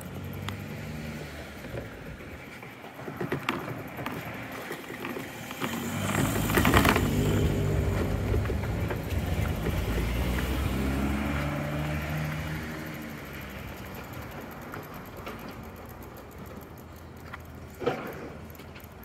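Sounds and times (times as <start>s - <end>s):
vehicle engine running: 0.0s - 17.7s.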